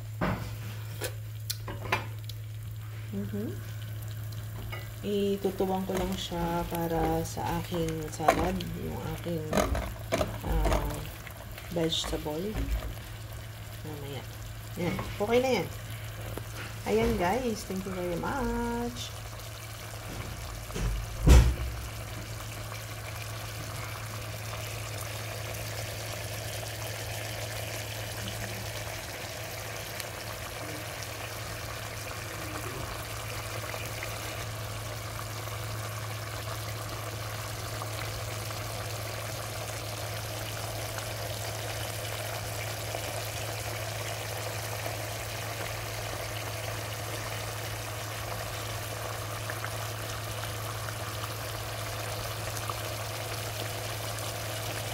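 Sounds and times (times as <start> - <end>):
constant low hum: 0.0 - 54.9
sauce bubbling and sputtering: 0.6 - 54.9.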